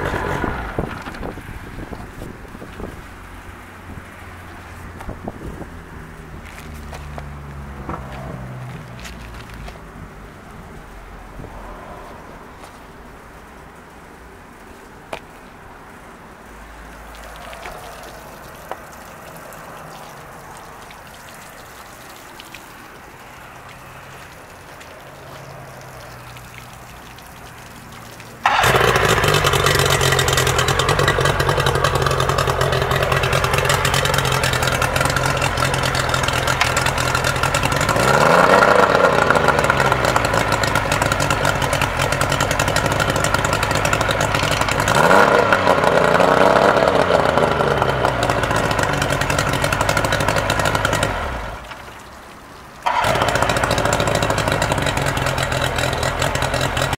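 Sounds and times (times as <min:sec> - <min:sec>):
outboard motor running and revving: 0:00.0 - 0:03.0, 0:28.5 - 0:51.7, 0:52.9 - 0:56.9.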